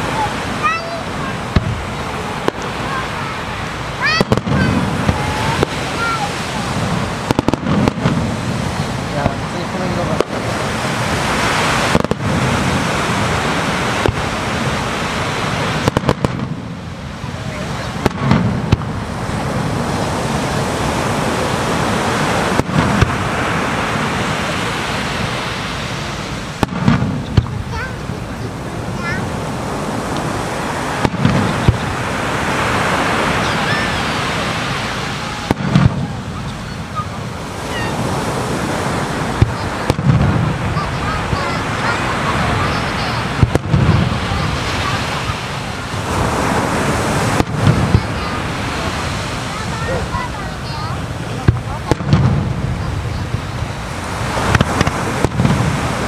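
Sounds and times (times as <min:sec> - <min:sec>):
fireworks bangs: 0:00.0 - 0:56.0
sea waves breaking: 0:00.0 - 0:56.0
steady rushing hiss: 0:00.0 - 0:56.0.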